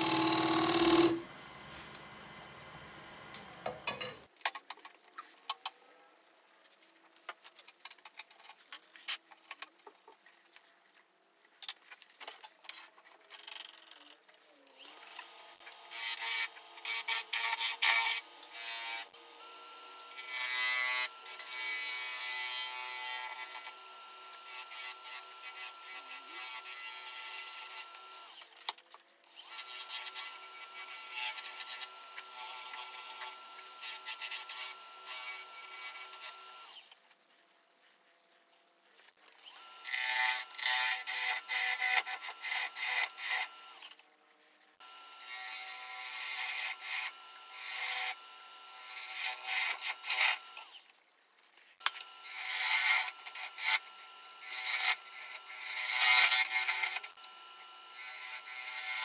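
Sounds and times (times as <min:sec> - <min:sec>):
gouge scraping spinning wood: 0:00.0 - 0:01.3
wood lathe motor whine: 0:00.0 - 0:04.2, 0:18.9 - 0:26.5, 0:29.5 - 0:36.8, 0:51.9 - 0:59.0.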